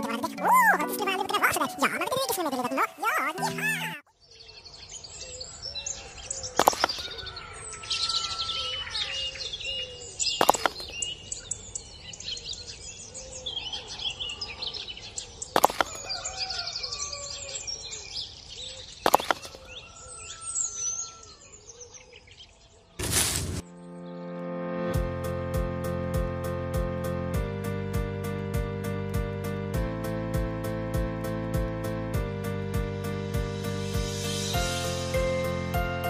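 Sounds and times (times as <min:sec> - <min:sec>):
birds chirping and singing: 0:00.0 - 0:23.0.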